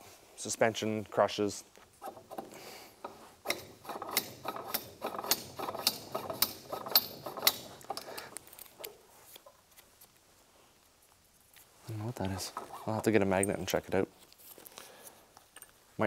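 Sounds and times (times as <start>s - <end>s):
metal parts clicking and knocking: 2.0s - 8.9s
metal scraping: 2.0s - 8.9s.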